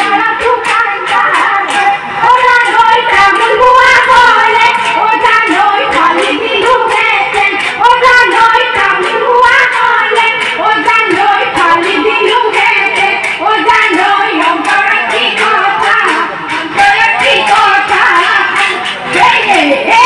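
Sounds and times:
person singing through loudspeaker: 0.0s - 20.0s.

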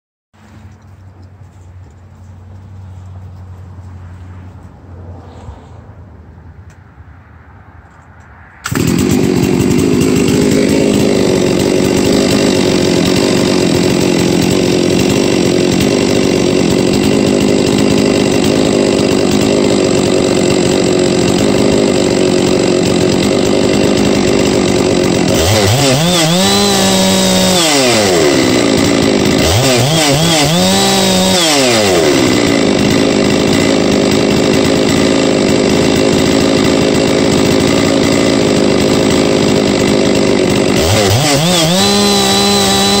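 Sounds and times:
chainsaw idling and revving: 8.6s - 43.0s.

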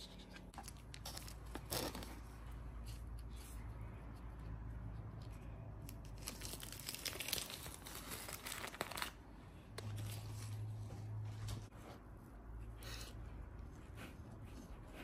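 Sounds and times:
parchment paper crinkling and tearing: 5.8s - 9.2s.

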